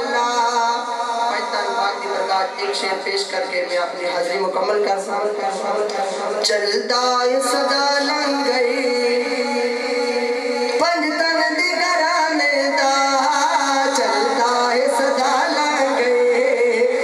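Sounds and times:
man singing into a microphone: 0.0s - 17.0s.

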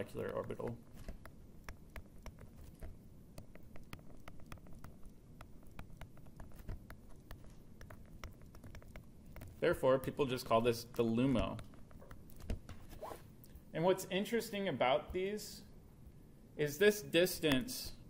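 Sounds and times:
stylus tapping on tablet screen: 0.0s - 9.6s.

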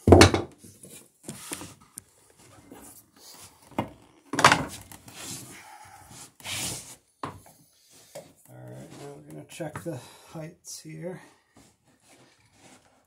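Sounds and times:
loud wooden knock: 0.1s - 0.5s
handling of tools and planks: 3.7s - 5.5s
scraping rub: 4.7s - 7.0s, 7.8s - 9.3s, 11.5s - 13.0s.

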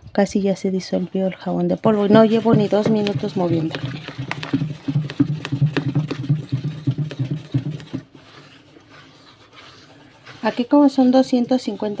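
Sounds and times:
water sloshing: 1.0s - 12.0s
paddle knocking against bowl: 2.0s - 8.1s.

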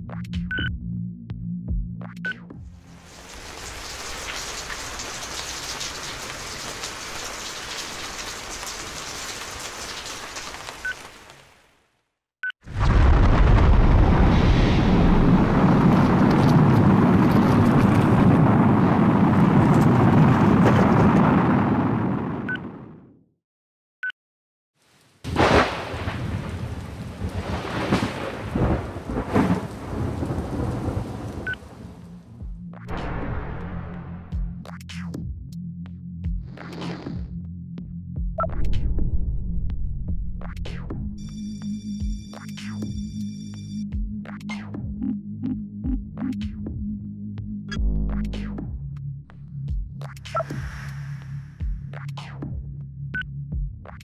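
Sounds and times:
steady rain falling: 2.8s - 11.9s, 15.0s - 22.0s, 24.8s - 32.2s
rumbling thunder: 12.7s - 23.0s, 25.3s - 32.0s, 32.9s - 34.3s.

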